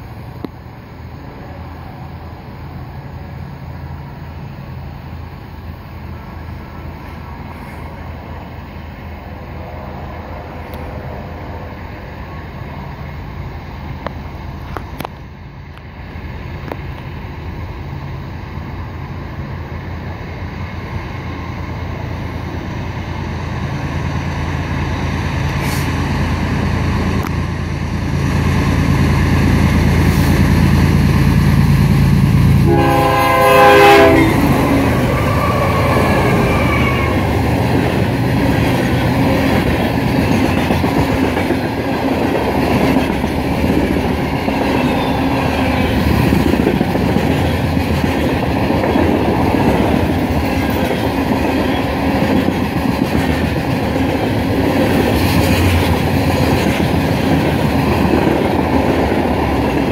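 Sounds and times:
diesel locomotive engine drone: 0.0 - 59.9
freight cars rolling on rails: 0.0 - 59.9
train horn blast: 32.5 - 37.4.

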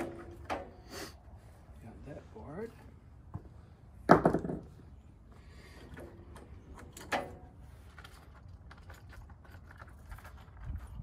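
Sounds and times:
clicks and rustles of handling: 5.8 - 11.0.

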